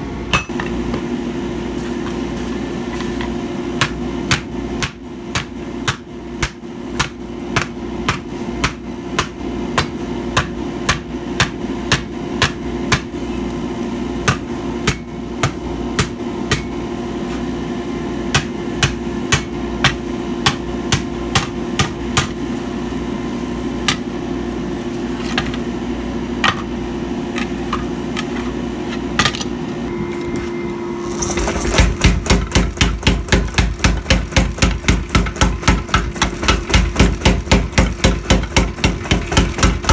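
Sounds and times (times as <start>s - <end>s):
steady hum: 0.0s - 39.9s
hand hammer striking steel on anvil: 3.8s - 13.2s, 14.2s - 16.8s, 18.3s - 22.4s.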